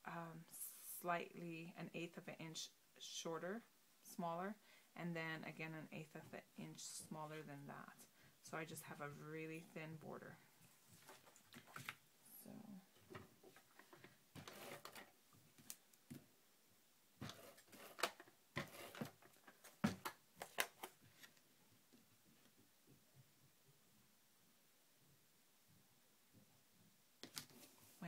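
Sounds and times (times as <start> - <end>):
paper sliding and rustling: 14.4 - 15.1, 17.2 - 21.4.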